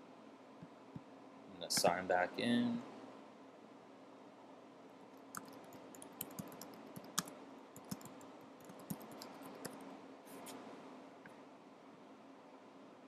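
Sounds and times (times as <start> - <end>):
keyboard keys clicking: 5.3 - 9.8.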